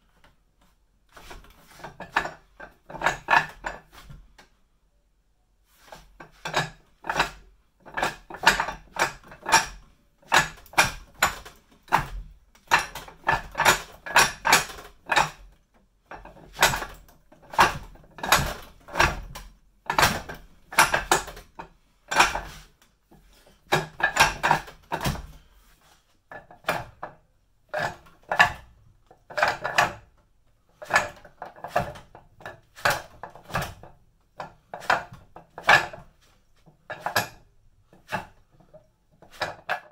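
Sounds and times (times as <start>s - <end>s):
wooden dummy arms clacking: 1.1s - 4.5s, 5.8s - 25.5s, 26.3s - 39.9s.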